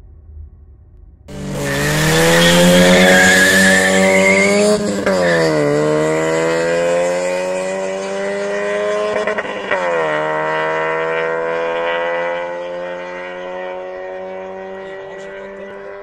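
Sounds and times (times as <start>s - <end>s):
tyre squeal: 1.3s - 5.8s
car engines accelerating: 1.3s - 16.0s.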